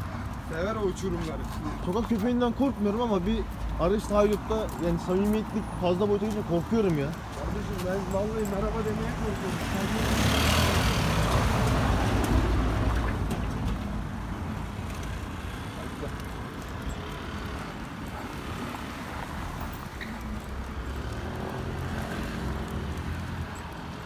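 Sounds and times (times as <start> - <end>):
low hum of street traffic: 0.0 - 24.0
car passing close by: 9.6 - 13.7.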